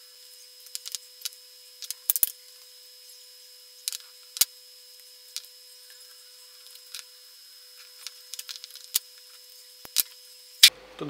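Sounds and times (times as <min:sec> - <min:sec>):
capacitors clicking and tapping: 0:00.5 - 0:02.8, 0:03.6 - 0:10.7.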